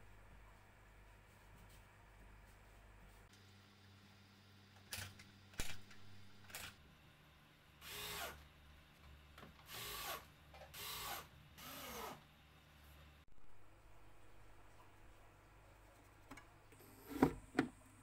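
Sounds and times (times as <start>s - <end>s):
cordless drill driving screws: 9.7s - 12.2s.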